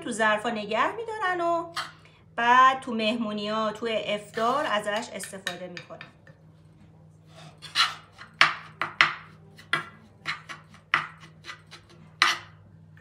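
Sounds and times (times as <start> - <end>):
metal spoon scraping a frying pan: 7.3 - 8.4.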